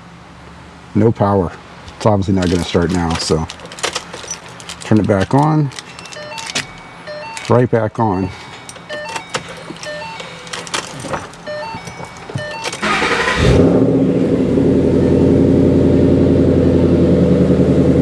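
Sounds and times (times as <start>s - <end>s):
clicks: 1.9s - 7.6s
car engine starting and idling: 1.9s - 18.0s
short electronic beeps: 5.9s - 13.4s.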